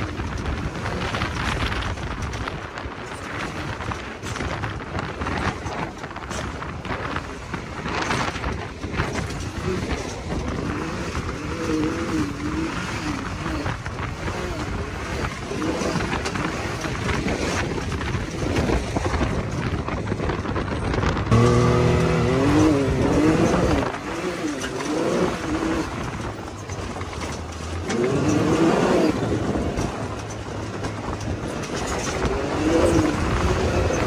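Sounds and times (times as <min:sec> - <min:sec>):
drivetrain noise: 0:00.0 - 0:34.0
wind noise: 0:00.0 - 0:34.0
engine revving: 0:03.2 - 0:19.8, 0:20.5 - 0:34.0.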